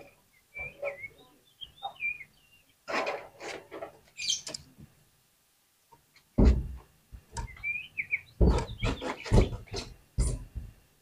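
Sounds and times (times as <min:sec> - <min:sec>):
bird calling whistled and harsh notes: 0:00.0 - 0:02.6.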